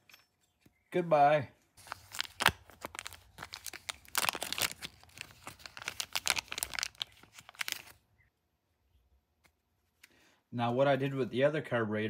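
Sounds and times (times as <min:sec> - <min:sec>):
crinkling and crackling of handling: 0:01.6 - 0:08.1.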